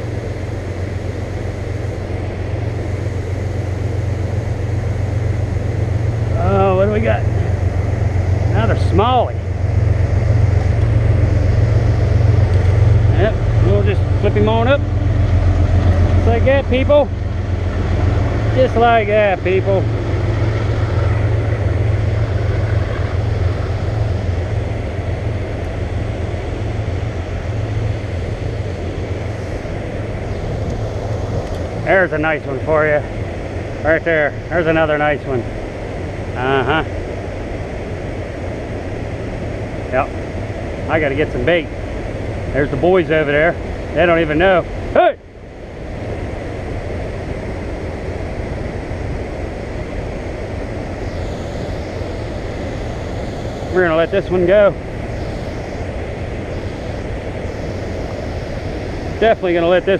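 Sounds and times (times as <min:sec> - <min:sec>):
wind rumble on microphone: 0:00.0 - 0:59.9.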